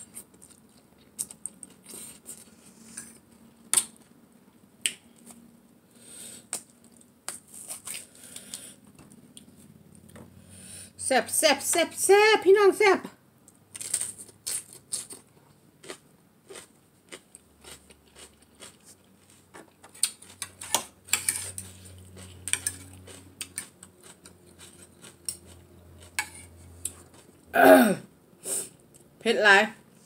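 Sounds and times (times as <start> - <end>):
chewing: 13.9 - 27.5.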